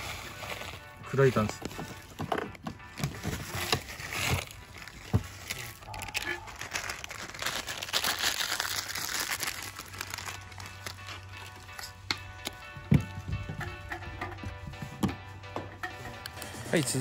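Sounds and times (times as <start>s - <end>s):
plastic bag crinkling: 0.0s - 2.2s, 3.0s - 12.0s.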